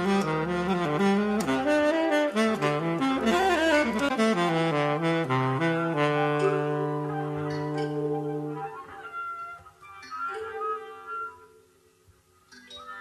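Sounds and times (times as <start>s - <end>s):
tenor saxophone jazz line: 0.0s - 9.8s.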